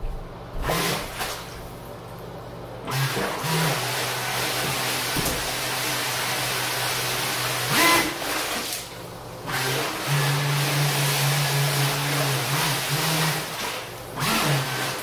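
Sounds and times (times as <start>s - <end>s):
low motor hum: 0.0s - 2.9s.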